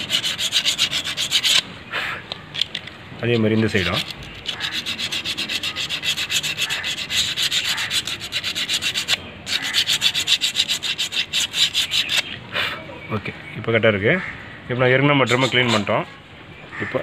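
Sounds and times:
sandpaper rubbing on brake lining: 0.0s - 1.6s, 3.2s - 12.4s.

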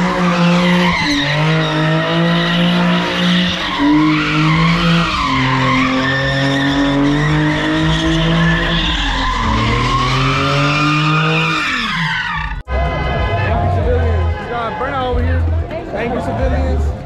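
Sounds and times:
tyres squealing on asphalt: 0.0s - 15.5s
car engine revving: 0.0s - 15.7s.

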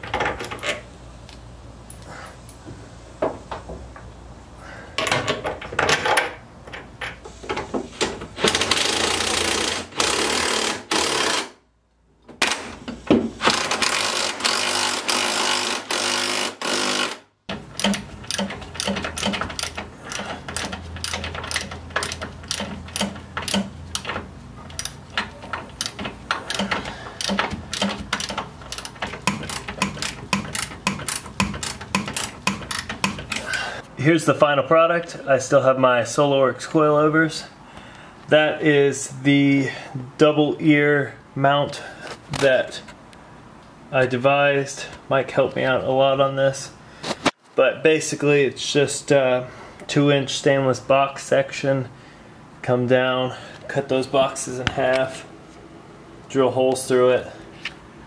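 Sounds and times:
power tool running: 8.5s - 11.6s, 13.4s - 17.2s.

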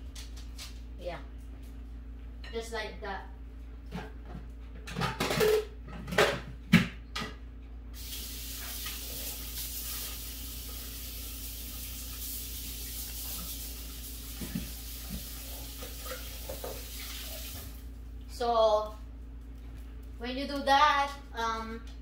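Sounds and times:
kitchen tap running water: 8.0s - 18.0s.

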